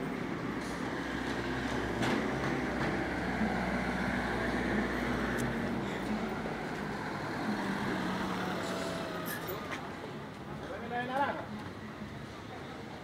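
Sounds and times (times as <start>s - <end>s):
street traffic noise: 0.0s - 13.0s
minivan driving past: 0.7s - 9.7s.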